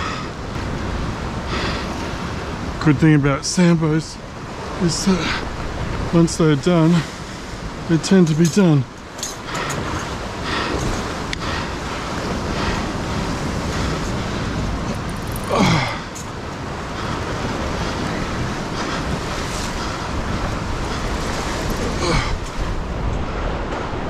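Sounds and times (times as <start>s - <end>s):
ocean swell against rocks: 0.0s - 24.0s
wind on microphone: 4.2s - 24.0s.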